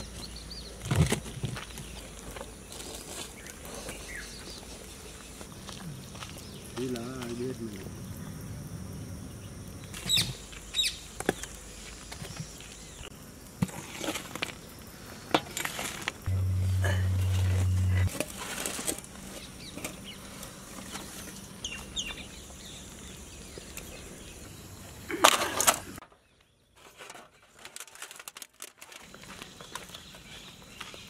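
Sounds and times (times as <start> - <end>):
steady low hum: 16.3 - 18.2.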